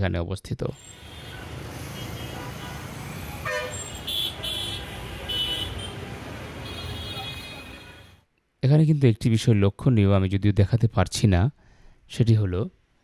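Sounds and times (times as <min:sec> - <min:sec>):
traffic engines rumbling: 0:00.7 - 0:08.2
vehicle horns honking: 0:00.8 - 0:08.2.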